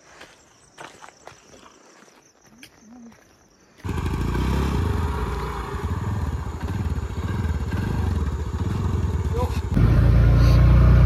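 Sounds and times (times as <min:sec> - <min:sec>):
motor scooter engine idling: 0:03.8 - 0:11.0.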